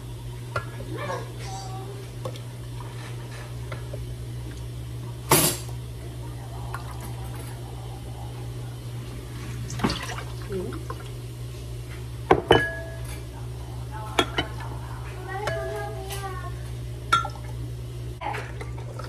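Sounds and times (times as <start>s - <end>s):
steady low hum: 0.0s - 19.0s
dishes tapping: 12.3s - 13.3s, 15.4s - 15.8s.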